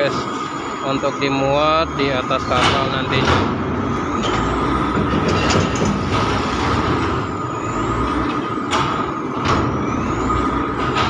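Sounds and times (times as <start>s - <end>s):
diesel engine running: 0.0s - 11.0s
steady whine: 0.0s - 11.0s
sharp knocks: 2.5s - 7.2s.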